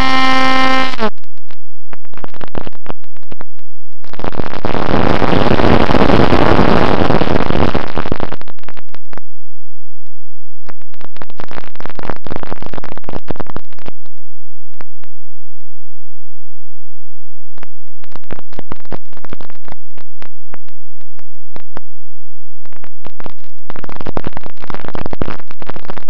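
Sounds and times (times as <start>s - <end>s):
harsh distorted noise bursts: 0.0s - 1.2s, 2.0s - 9.2s, 10.7s - 14.2s, 17.6s - 21.8s, 22.7s - 26.0s.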